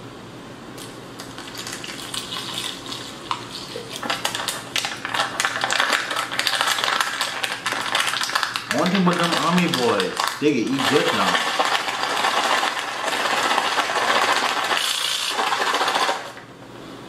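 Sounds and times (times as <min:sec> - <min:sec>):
foil pouch crinkling: 0:01.2 - 0:03.2, 0:03.8 - 0:16.4
water pouring into pouch: 0:06.6 - 0:16.1.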